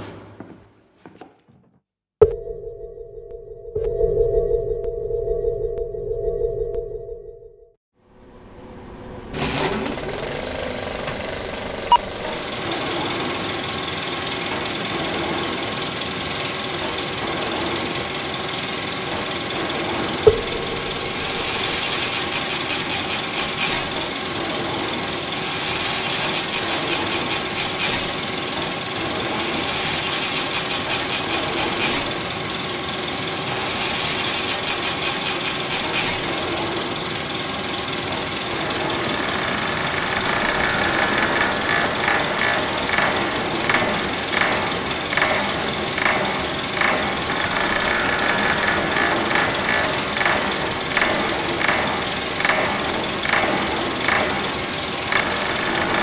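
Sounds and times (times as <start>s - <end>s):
sharp click: 20.3s - 23.8s.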